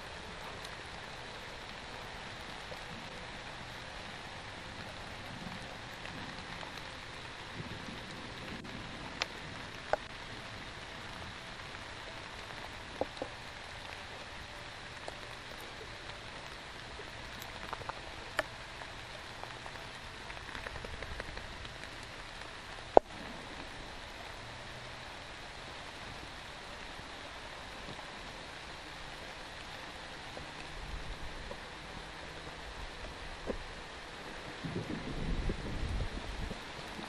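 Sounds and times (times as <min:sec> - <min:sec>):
steady rain hiss: 0:00.0 - 0:37.0.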